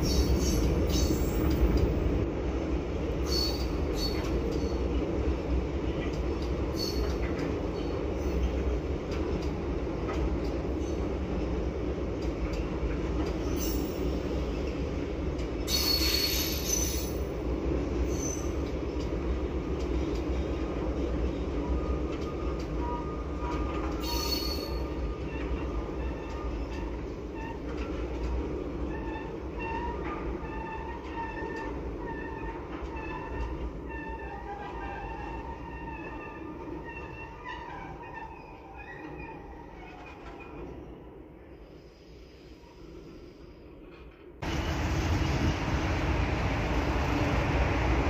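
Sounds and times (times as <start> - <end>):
train rumbling on track: 0.0 - 48.0
wheel squeal: 6.8 - 7.2, 15.7 - 17.2, 22.8 - 27.9, 28.9 - 40.6.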